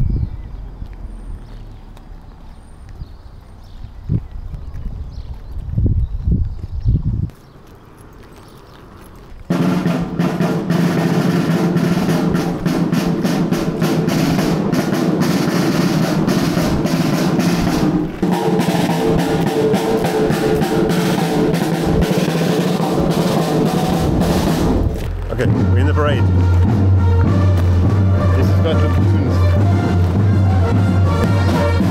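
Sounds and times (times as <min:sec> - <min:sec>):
bugles holding notes: 0:07.5 - 0:31.9
bass drum: 0:09.5 - 0:31.9
snare drums rolling: 0:09.5 - 0:31.9
cymbals: 0:25.4 - 0:31.9.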